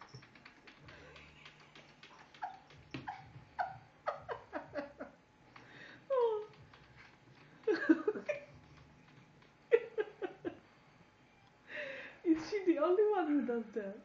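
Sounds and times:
cat chirping: 2.1 - 4.5.

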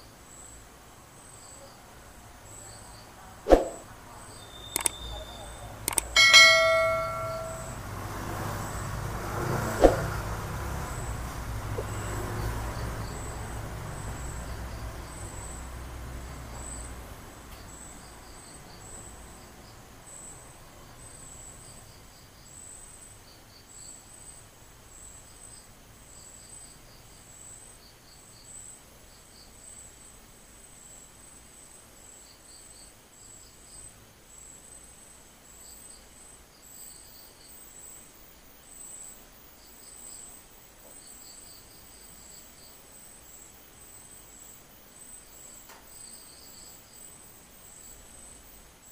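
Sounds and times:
crickets chirping: 0.0 - 48.9
sharp click: 4.7 - 5.1, 5.8 - 7.7
passing vehicle rumble: 6.4 - 20.0.

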